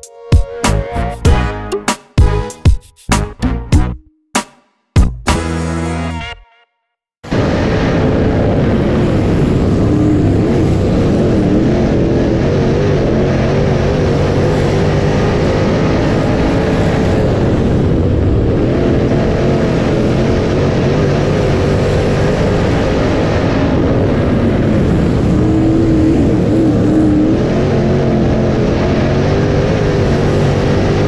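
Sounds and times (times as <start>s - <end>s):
race car engines at speed: 7.2s - 31.0s.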